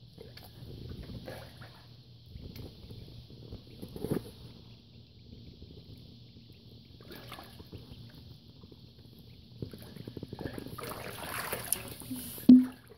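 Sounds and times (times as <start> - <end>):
water splashing in a basin: 7.0 - 7.8, 9.7 - 12.9.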